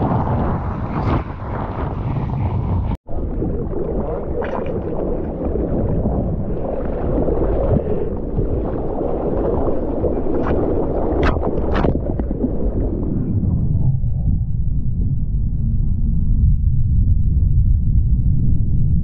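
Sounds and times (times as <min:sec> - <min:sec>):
low rumble of wave: 0:00.0 - 0:19.0
water sloshing and splashing: 0:03.1 - 0:13.0.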